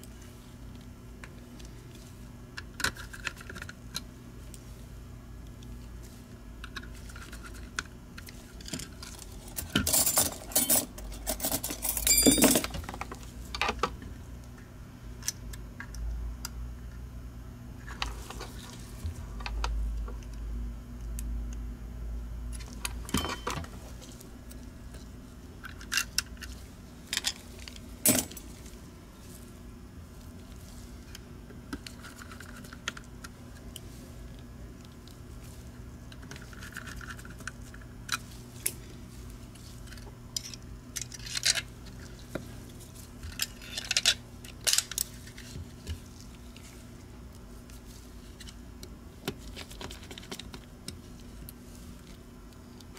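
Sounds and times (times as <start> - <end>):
steady low hum: 0.0 - 52.9
small parts clicking and clattering: 6.6 - 13.8, 25.6 - 28.5, 39.8 - 42.4, 43.2 - 45.5.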